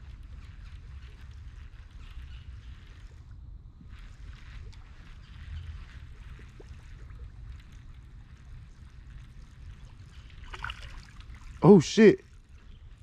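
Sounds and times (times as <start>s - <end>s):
wind rumble on microphone: 0.0s - 11.6s, 12.2s - 13.0s
faint scattered ticks: 0.0s - 13.0s.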